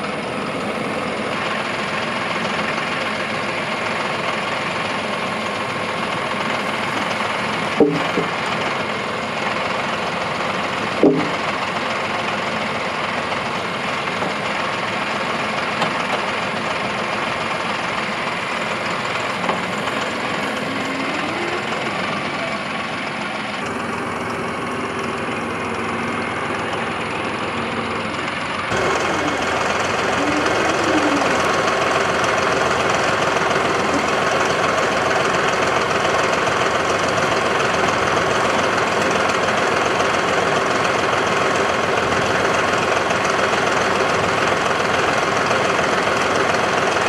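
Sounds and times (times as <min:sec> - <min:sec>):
tractor engine running: 0:00.0 - 0:47.0
sharp knocks: 0:07.8 - 0:08.4, 0:11.0 - 0:11.4.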